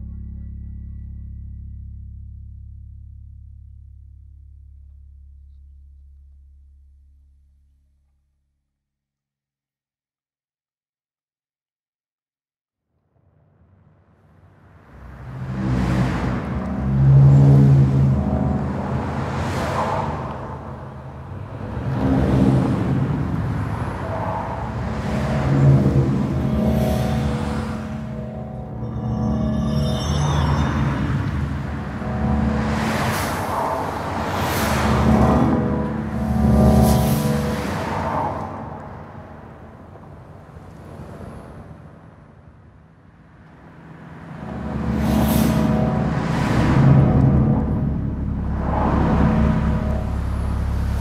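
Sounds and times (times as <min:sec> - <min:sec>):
vocoded traffic chords: 0:00.0 - 0:04.4, 0:14.9 - 0:42.6, 0:43.4 - 0:51.0.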